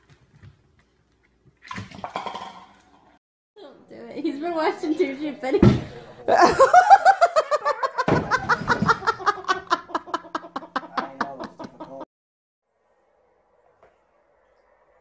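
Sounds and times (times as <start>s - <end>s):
person laughing hard: 6.3s - 12.0s.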